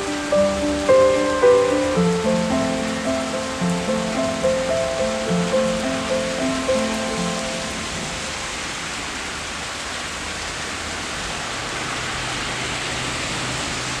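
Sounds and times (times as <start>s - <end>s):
music notes: 0.0s - 8.3s
steady rain falling: 0.0s - 14.0s.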